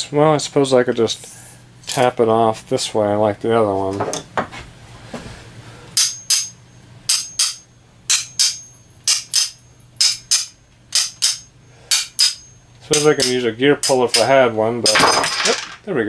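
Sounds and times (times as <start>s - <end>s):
hammer tapping on metal: 6.0s - 14.3s.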